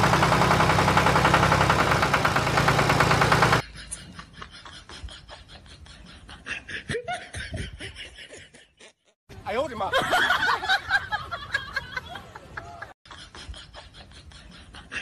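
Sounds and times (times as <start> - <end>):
truck engine idling: 0.0 - 3.6.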